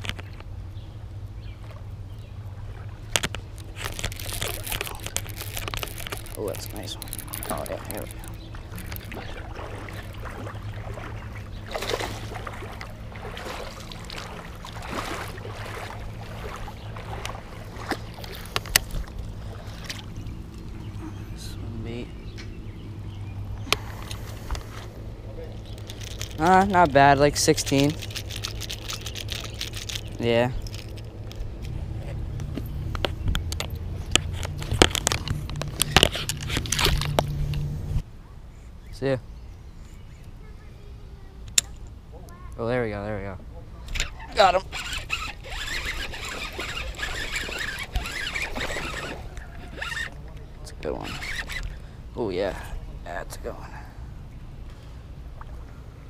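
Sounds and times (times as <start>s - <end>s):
steady low hum: 0.0s - 56.0s
fish splashing in water: 1.6s - 20.9s, 44.0s - 50.4s
fishing reel cranking: 3.2s - 9.3s, 25.6s - 31.4s, 33.0s - 37.6s, 43.9s - 50.2s, 50.8s - 51.8s.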